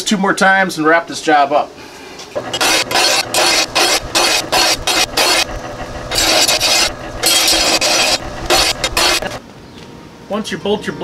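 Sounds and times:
grinder sharpening mower blade: 0:02.4 - 0:09.4.

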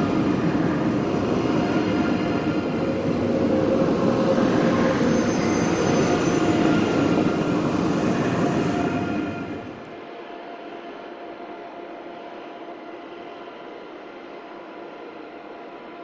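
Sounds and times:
train wheels rumbling on rails: 0:00.0 - 0:09.9
train whining tones: 0:00.0 - 0:09.9.

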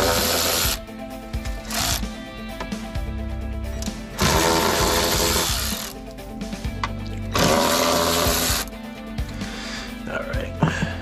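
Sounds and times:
cordless ratchet motor: 0:00.0 - 0:00.8, 0:01.6 - 0:02.1, 0:04.2 - 0:06.0, 0:07.4 - 0:08.7
background music: 0:00.0 - 0:11.0.

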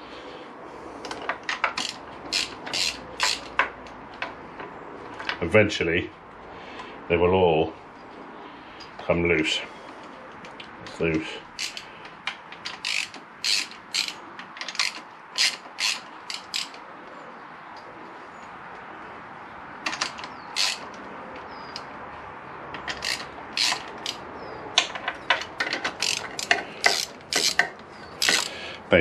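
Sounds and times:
socket ratchet clicking: 0:01.1 - 0:03.7, 0:11.6 - 0:16.8, 0:19.8 - 0:21.0, 0:22.8 - 0:28.6.

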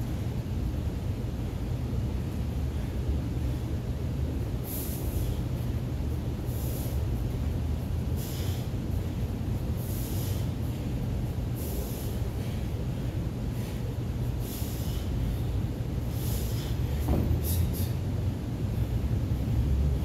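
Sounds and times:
man exhaling sharply: 0:04.6 - 0:05.5, 0:08.2 - 0:08.7, 0:09.8 - 0:10.8, 0:11.6 - 0:15.4, 0:16.1 - 0:18.1.

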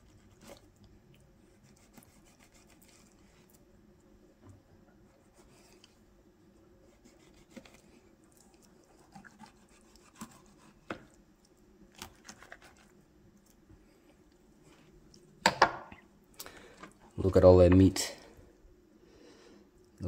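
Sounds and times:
low steady hum: 0:00.0 - 0:20.0
knife scraping fish skin: 0:01.5 - 0:03.2, 0:06.9 - 0:07.9, 0:09.0 - 0:10.9, 0:12.0 - 0:12.9.

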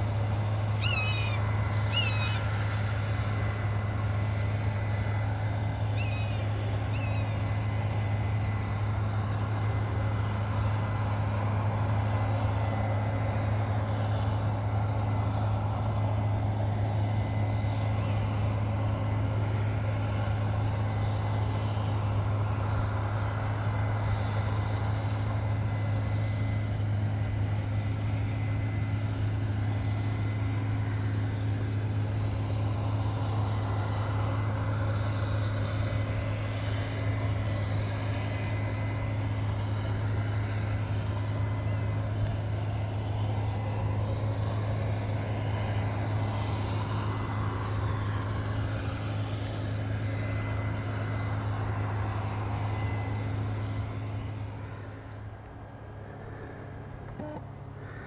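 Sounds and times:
deep engine drone: 0:00.0 - 0:58.0
faint high whine: 0:28.4 - 0:58.0.

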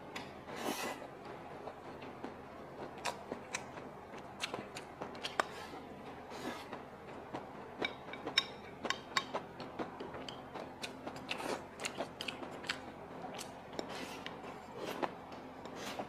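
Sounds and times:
chewing and crunching food: 0:01.6 - 0:16.0.

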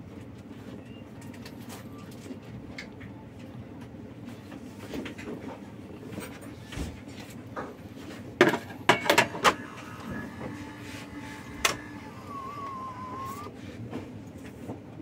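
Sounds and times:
coffee machine mechanical hum: 0:00.0 - 0:15.0
coffee machine knocks and clatters: 0:08.4 - 0:09.6
wavering whine: 0:08.8 - 0:13.6.

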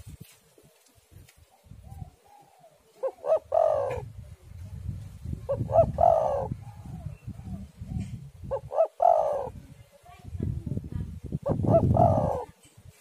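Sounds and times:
dove cooing: 0:01.5 - 0:04.1, 0:05.4 - 0:09.7, 0:11.4 - 0:12.6.

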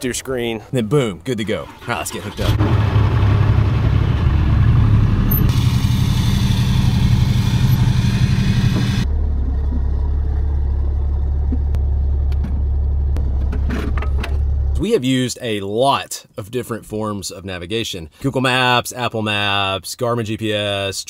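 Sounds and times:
diesel engine droning: 0:01.5 - 0:14.9.

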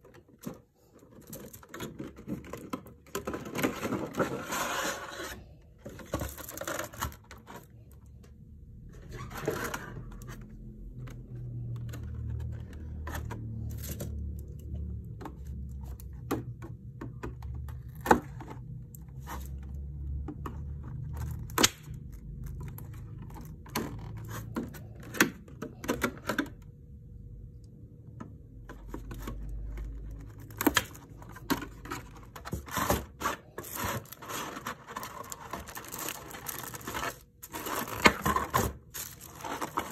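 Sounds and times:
stiff plastic packaging crackling: 0:29.0 - 0:39.9.

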